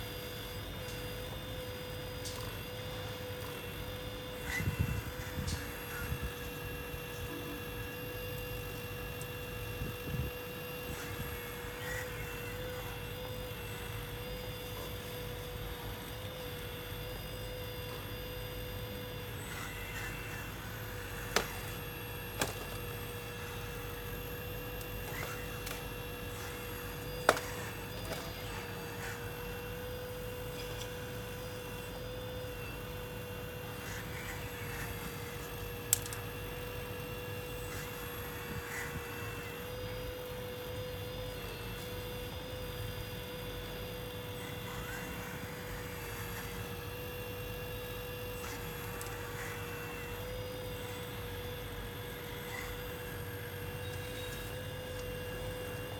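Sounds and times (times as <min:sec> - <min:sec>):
hydraulic pump whine: 0:00.0 - 0:55.9.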